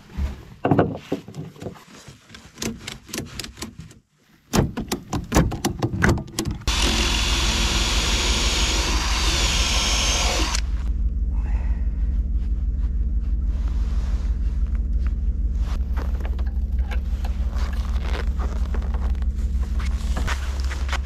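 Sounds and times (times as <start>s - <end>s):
cordless drill drilling into wood: 6.7s - 10.6s.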